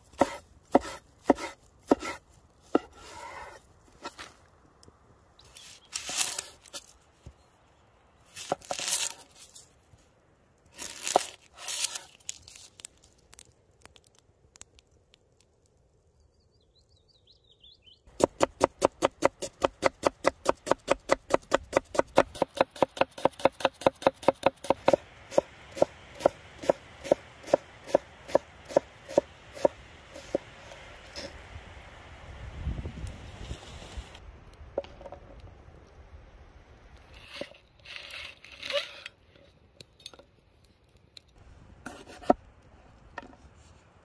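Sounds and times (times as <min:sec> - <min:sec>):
cleaver chopping on wooden board: 0:00.2 - 0:02.2, 0:18.2 - 0:29.7
onion skin crackling as peeled: 0:10.7 - 0:15.3.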